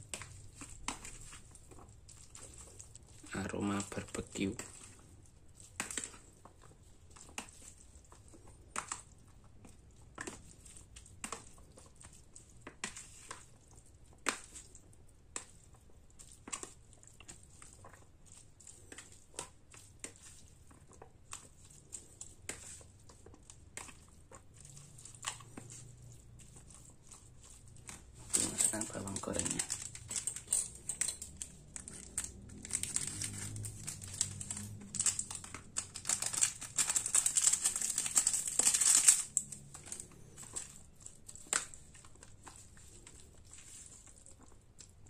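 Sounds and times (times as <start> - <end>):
spoon scraping plastic container: 23.5 - 44.6.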